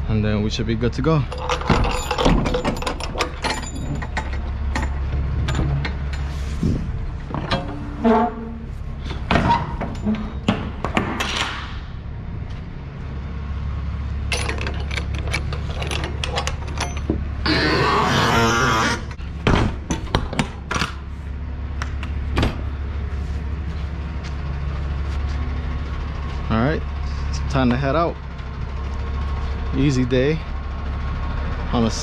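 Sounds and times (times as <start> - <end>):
steady low hum: 0.0 - 32.0
metal door clanks and clicks: 1.3 - 6.3, 7.3 - 11.7, 14.3 - 17.3
door squeak: 7.4 - 8.7, 9.3 - 10.7, 16.8 - 19.2.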